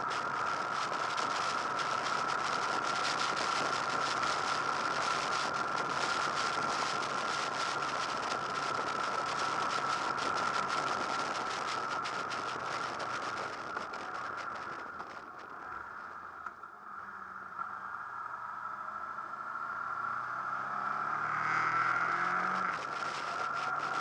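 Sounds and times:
motorcycle engine running: 0:00.0 - 0:15.6, 0:21.7 - 0:24.0
wind rushing over camera: 0:00.0 - 0:16.6, 0:21.3 - 0:24.0
constant high whine: 0:00.0 - 0:24.0.

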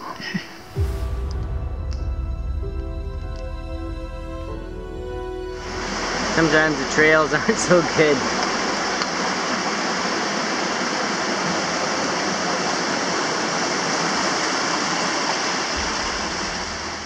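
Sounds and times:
low rumble: 0:00.6 - 0:07.6, 0:15.8 - 0:17.0
creek rushing over rocks: 0:05.6 - 0:17.0.

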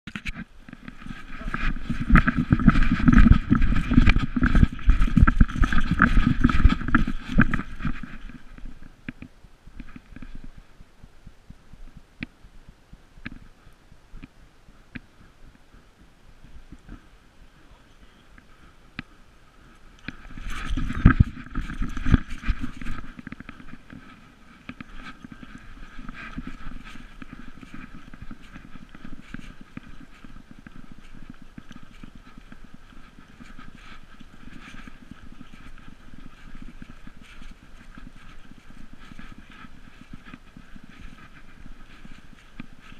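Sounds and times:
camera jostling thumps and rubbing: 0:00.1 - 0:10.9, 0:20.0 - 0:42.9
dog footfalls on dirt trail: 0:00.3 - 0:10.6, 0:18.4 - 0:42.9.

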